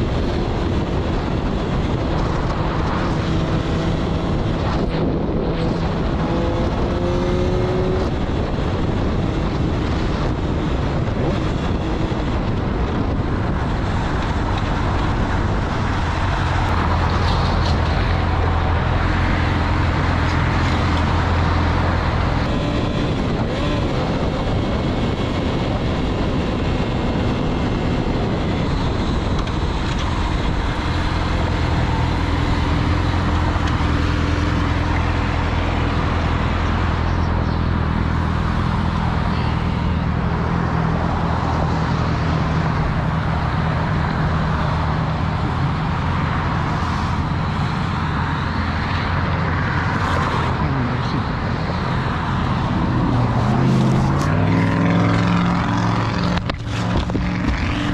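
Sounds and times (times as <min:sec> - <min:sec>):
wind rush over microphone: 0:00.0 - 0:57.9.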